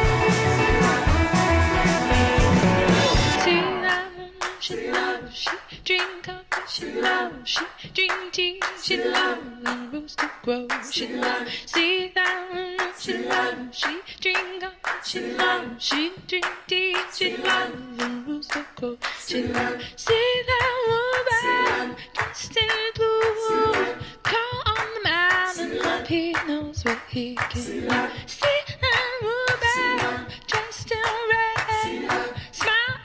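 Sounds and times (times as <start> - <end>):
person singing: 0.0 - 4.9
hand claps beat: 4.4 - 33.0.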